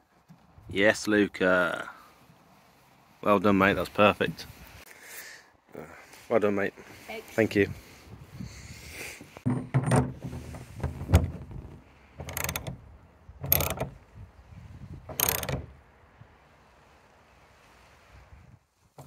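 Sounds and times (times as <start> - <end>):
socket ratchet clicking: 12.2 - 12.8, 13.4 - 13.9, 15.1 - 15.6.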